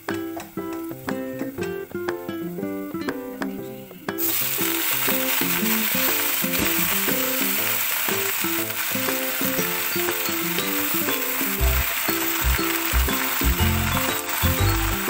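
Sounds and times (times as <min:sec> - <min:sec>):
background music: 0:00.0 - 0:15.0
greens sizzling in hot oil: 0:04.2 - 0:15.0
spatula turning greens in wok: 0:04.2 - 0:15.0.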